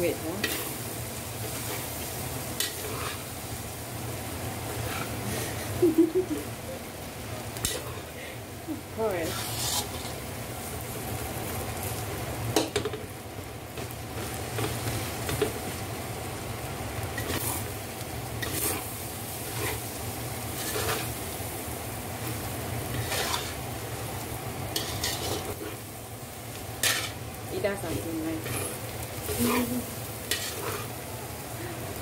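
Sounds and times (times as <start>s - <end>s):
rice sizzling in a wok: 0.0s - 32.0s
metal spatula scraping a wok: 0.3s - 2.0s, 2.6s - 3.3s, 7.6s - 8.1s, 9.0s - 10.2s, 17.2s - 17.7s, 18.4s - 19.9s, 20.5s - 21.2s, 22.9s - 23.6s, 24.7s - 25.8s, 26.8s - 27.2s, 28.0s - 31.0s.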